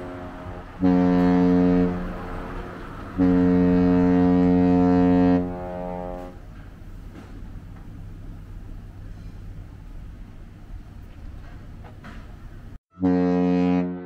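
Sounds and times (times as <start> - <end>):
deep ship's horn blasts: 0.0 - 6.5, 12.9 - 14.0.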